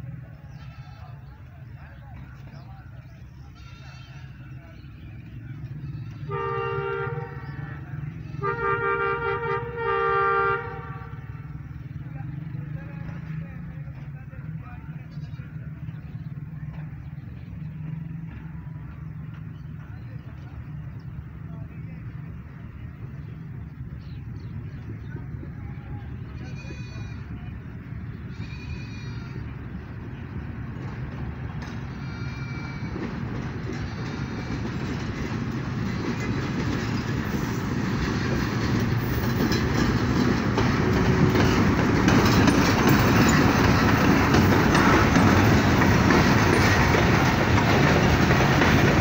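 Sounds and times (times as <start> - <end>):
train rumbling: 0.0 - 49.0
locomotive air horn blasts: 6.2 - 7.6, 8.3 - 11.5.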